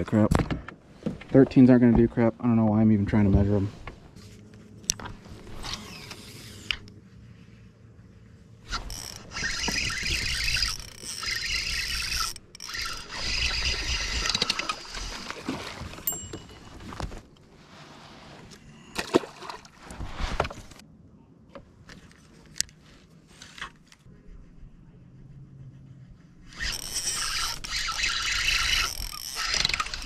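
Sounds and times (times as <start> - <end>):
fishing reel reeling: 5.6 - 6.9, 8.7 - 15.4, 26.5 - 30.0
water splashing: 13.0 - 16.2.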